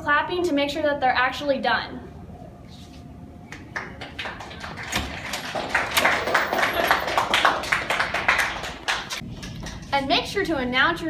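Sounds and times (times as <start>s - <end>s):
people clapping: 3.5s - 9.9s.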